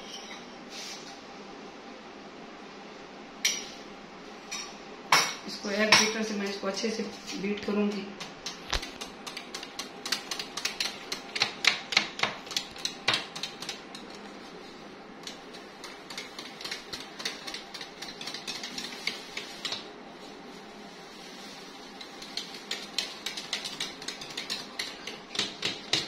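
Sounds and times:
beater whisking batter in a bowl: 7.1 - 19.9, 21.4 - 26.0.

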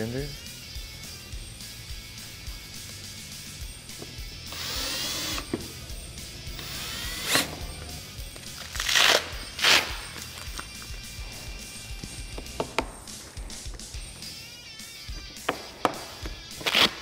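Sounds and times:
background guitar music: 0.0 - 17.0
cordless drill driving screws: 4.5 - 5.6, 6.6 - 7.6
drill click: 4.5 - 5.6.

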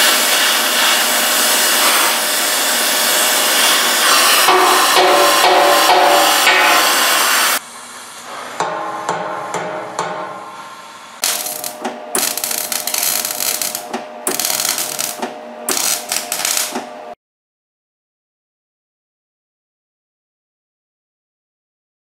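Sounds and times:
welding arc crackling: 0.0 - 7.6, 11.2 - 16.9.

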